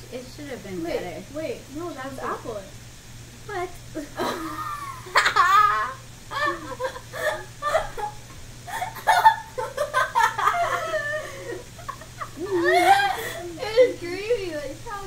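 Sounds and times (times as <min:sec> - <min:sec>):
girl laughing: 0:04.0 - 0:13.9
woman laughing: 0:04.0 - 0:13.9.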